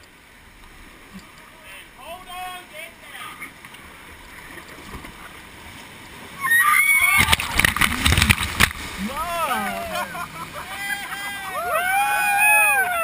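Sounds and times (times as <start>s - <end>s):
whitewater rushing: 5.3s - 13.0s
water crashing over raft: 6.3s - 13.0s
people shrieking: 6.4s - 7.6s, 9.0s - 13.0s.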